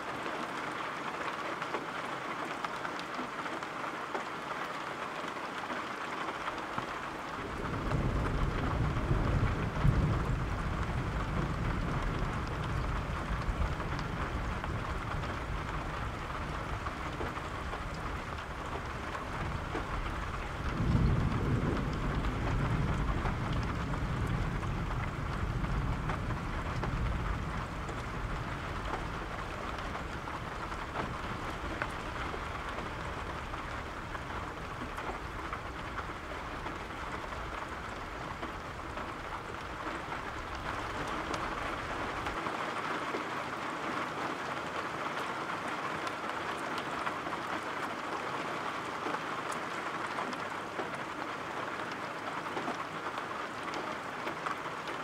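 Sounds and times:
steady rain: 0.0s - 55.0s
low rolling thunder: 7.4s - 42.4s.

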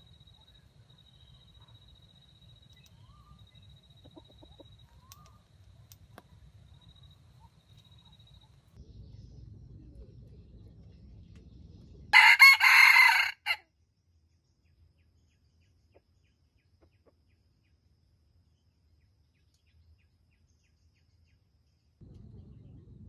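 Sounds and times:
rooster crowing: 12.1s - 13.6s.

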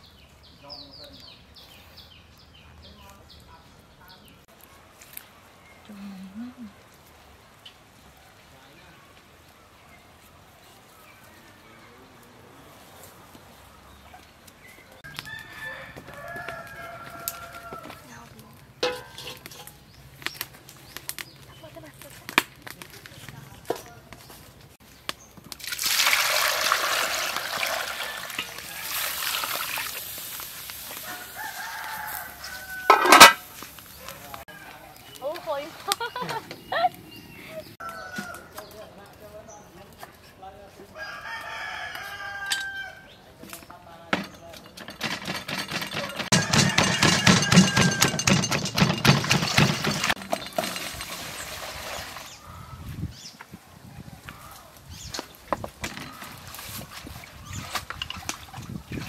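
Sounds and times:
water pouring into a pot: 25.6s - 31.4s, 50.6s - 52.3s
pestle pounding in mortar: 45.0s - 50.2s.

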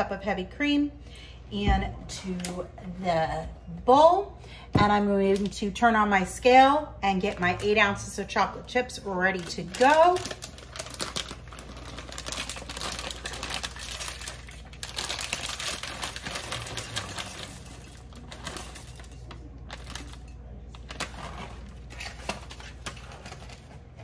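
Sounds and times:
plastic bag crinkling: 9.3s - 24.0s
chocolate chips pattering into bowl: 9.4s - 23.1s.

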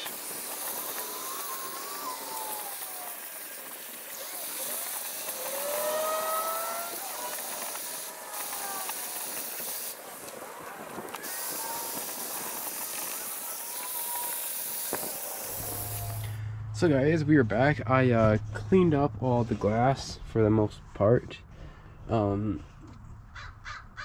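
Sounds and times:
vacuum cleaner running: 0.0s - 16.4s
vacuum sucking up glass shards: 0.0s - 16.4s.

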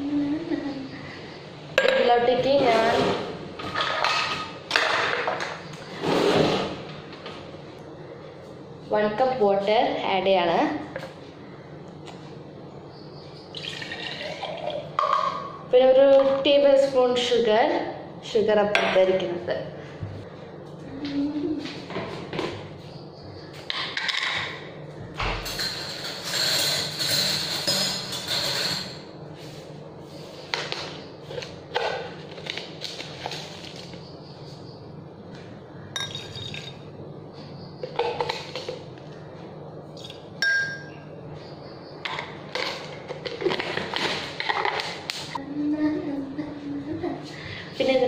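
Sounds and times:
spoon clinking against jar: 36.0s - 36.8s.

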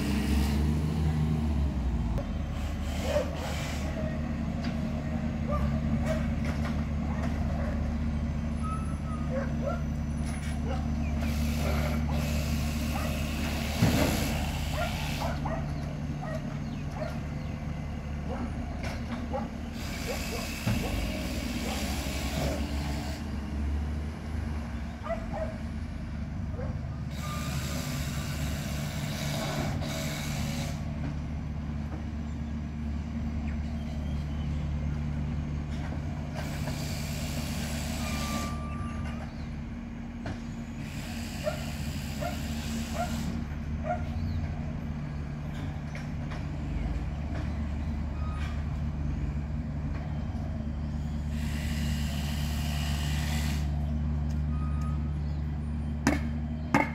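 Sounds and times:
diesel truck engine running: 0.0s - 56.9s
air brake hisses: 2.6s - 4.2s, 11.2s - 15.4s, 36.4s - 38.8s, 40.6s - 43.4s, 51.2s - 53.8s.

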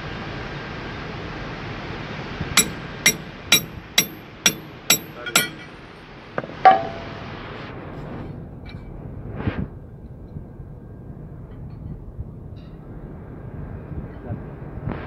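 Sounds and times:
sledge hammer striking metal: 2.6s - 5.8s, 6.7s - 7.2s.

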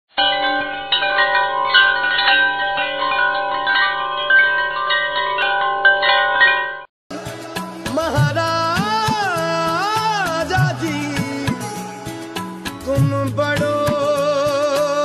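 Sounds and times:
chimes ringing: 0.1s - 6.9s.

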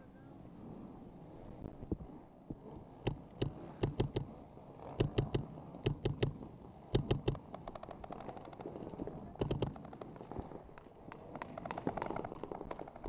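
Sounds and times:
paintball marker firing shots: 3.1s - 4.3s, 5.0s - 6.4s, 7.0s - 8.6s, 9.4s - 10.0s.

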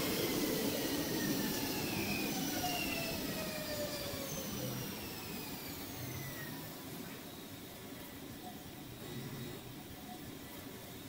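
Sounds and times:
electric train drive whining: 0.0s - 6.9s.

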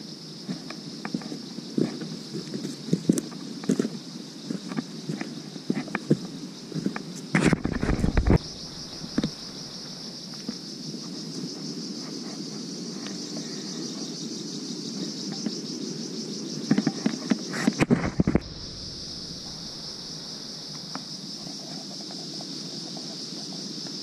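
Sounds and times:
insects trilling: 0.0s - 24.0s
footsteps on dirt trail: 0.4s - 12.3s.

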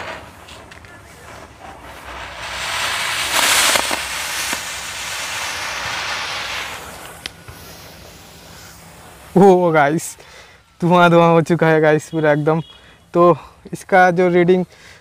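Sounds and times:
rocket motor hissing thrust: 2.0s - 9.1s.

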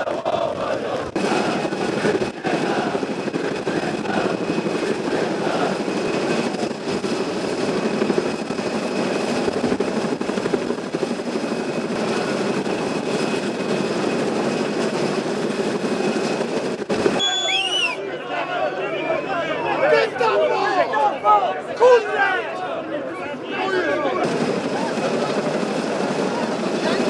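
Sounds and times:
helicopter flying overhead: 0.0s - 21.7s, 22.7s - 27.0s.

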